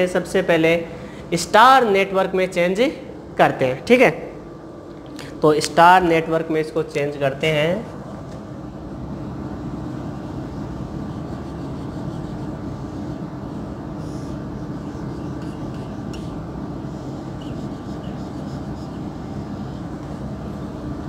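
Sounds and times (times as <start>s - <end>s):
low mechanical hum and hiss: 0.0s - 21.0s
marker scratching on whiteboard: 10.5s - 20.4s.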